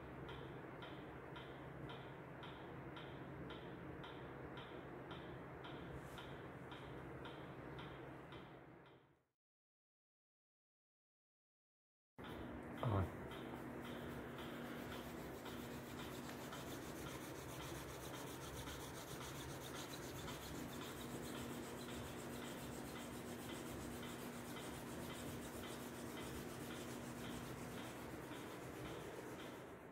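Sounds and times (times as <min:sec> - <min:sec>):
hand rubbing on shirt fabric: 0:14.6 - 0:29.6.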